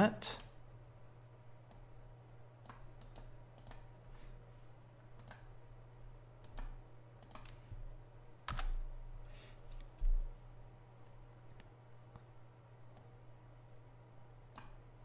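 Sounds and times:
low steady hum: 0.0 - 15.0
mouse and keyboard clicks: 6.4 - 7.6.

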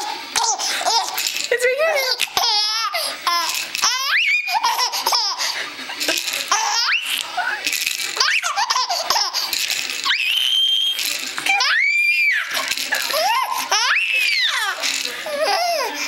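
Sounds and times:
baby laughing: 0.4 - 1.2, 1.9 - 7.2, 8.2 - 9.5, 13.1 - 16.0
baby squealing: 2.4 - 5.4, 11.5 - 16.0.

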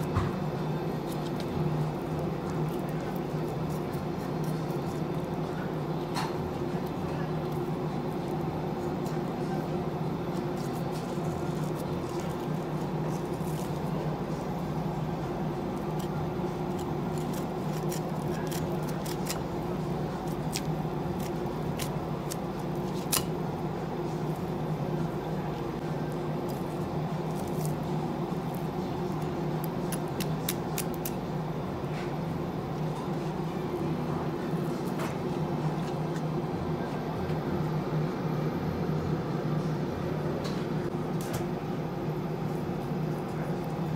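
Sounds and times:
low machine hum: 0.0 - 43.9
knife scraping on fish bone: 15.8 - 23.3.

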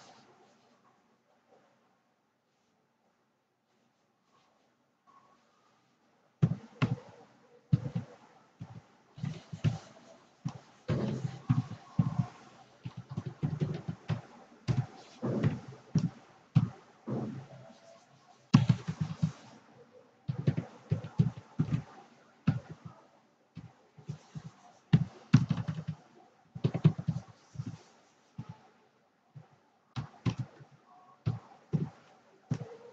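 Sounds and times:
keyboard typing: 25.0 - 26.0.

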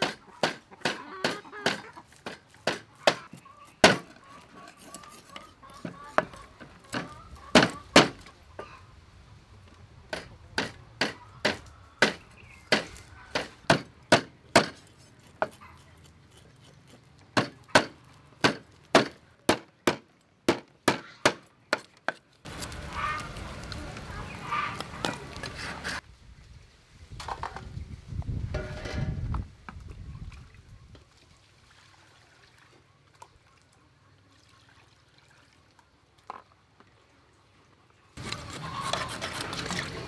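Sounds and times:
fish scaler scraping scales: 14.8 - 17.3, 25.1 - 26.0, 38.2 - 40.0.

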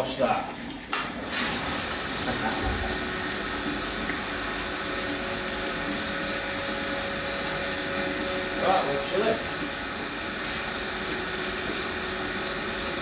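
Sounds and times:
pump running: 0.0 - 13.0
water jetting onto floor drain: 0.0 - 13.0.

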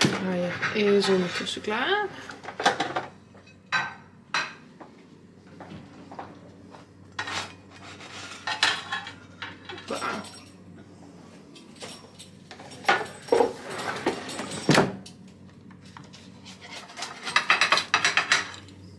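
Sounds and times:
dishes and utensils clattering: 0.0 - 4.7, 7.1 - 10.7, 11.5 - 15.2, 15.8 - 18.9.

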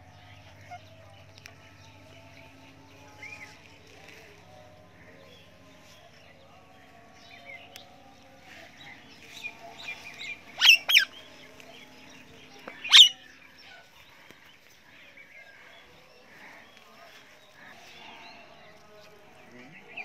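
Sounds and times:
parrots chirping and chattering: 9.0 - 14.0
parrot shrill screeches: 10.6 - 11.1, 12.9 - 13.2.

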